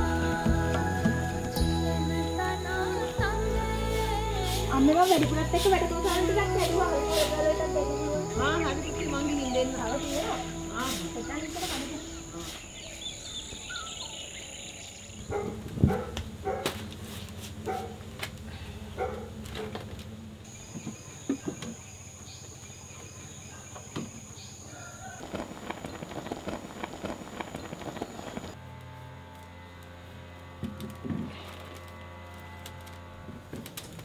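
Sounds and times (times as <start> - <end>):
high-pitched insect buzz: 1.3 - 15.3
small birds chirping: 4.8 - 15.4, 20.5 - 28.6.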